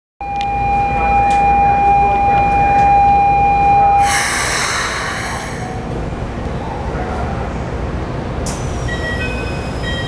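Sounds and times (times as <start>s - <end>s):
steady electronic signal tone: 0.2s - 5.8s.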